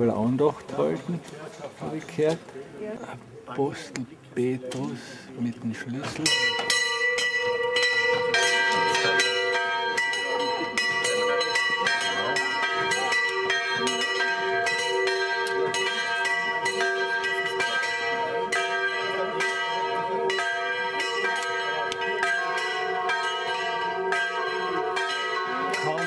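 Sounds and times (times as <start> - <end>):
church bells pealing: 6.1 - 26.0.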